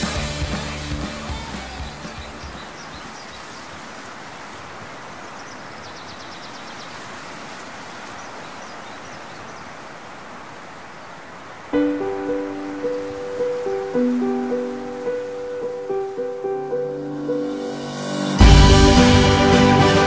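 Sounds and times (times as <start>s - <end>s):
steady rushing hiss: 0.0s - 20.0s
high bird chirps: 1.3s - 3.7s.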